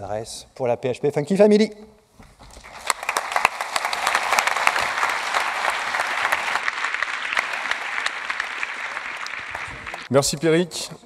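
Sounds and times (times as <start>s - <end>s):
audience applauding: 2.5s - 10.1s.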